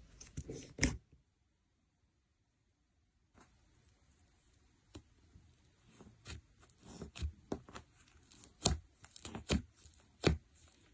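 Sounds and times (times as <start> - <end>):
sticky slime pops and crackles: 7.2 - 10.8.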